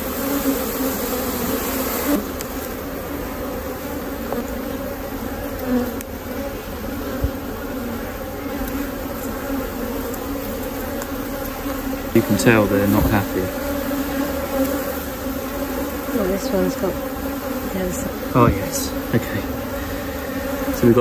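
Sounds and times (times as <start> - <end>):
bees humming: 0.0 - 21.0
smoker puff hissing: 19.0 - 20.8.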